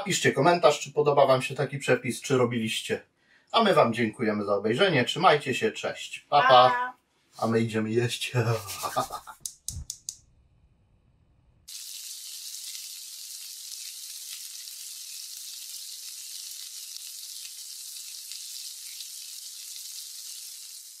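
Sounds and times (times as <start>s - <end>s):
food sizzling in a wok: 11.7s - 21.0s.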